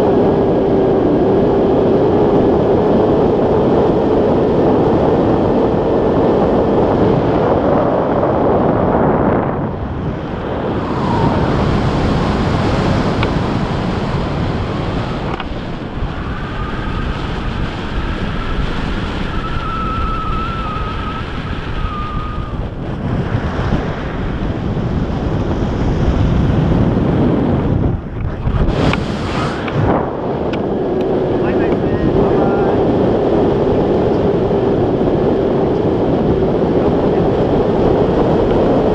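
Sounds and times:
wind rushing over microphone: 0:00.0 - 0:38.9
faint wavering whistle: 0:18.2 - 0:22.6.

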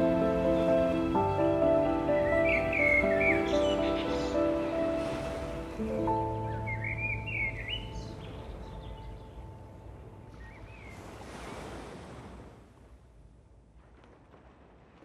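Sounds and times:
soft rushing surf or wind: 0:00.0 - 0:15.0
bird chirps: 0:02.1 - 0:04.8, 0:06.3 - 0:09.4.

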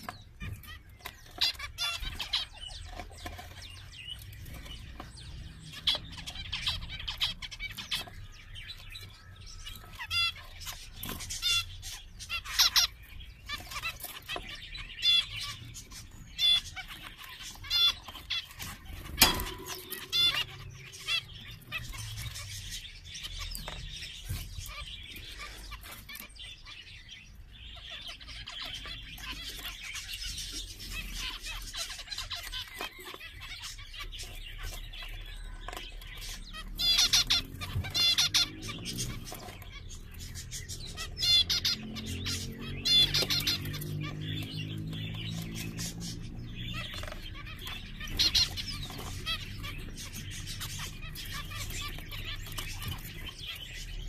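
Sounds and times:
finches beeping and chirping: 0:00.0 - 0:54.0.

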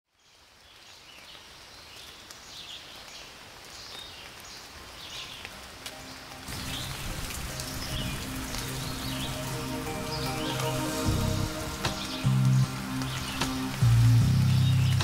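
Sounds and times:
rain: 0:00.0 - 0:15.0
low sustained music tones: 0:05.1 - 0:15.0.

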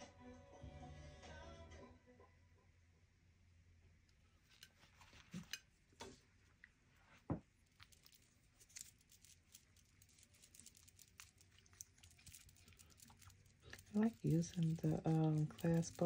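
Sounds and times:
stir stick scraping glass bowl: 0:10.4 - 0:16.0.

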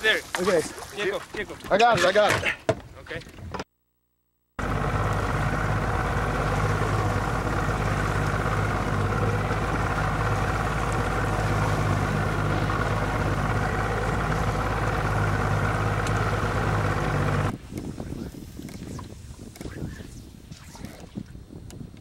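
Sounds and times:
wind and water hiss: 0:00.0 - 0:01.7, 0:04.6 - 0:22.0
boat engine running: 0:04.6 - 0:17.9.

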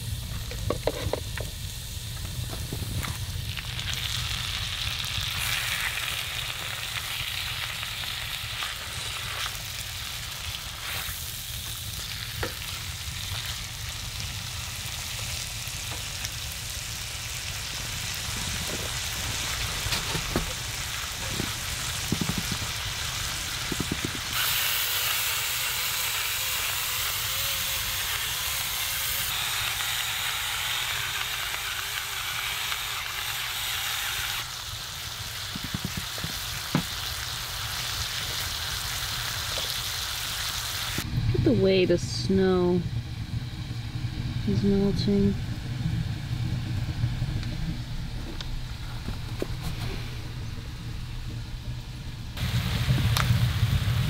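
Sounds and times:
chicken sizzling in a skillet: 0:00.0 - 0:41.1, 0:52.4 - 0:54.0.

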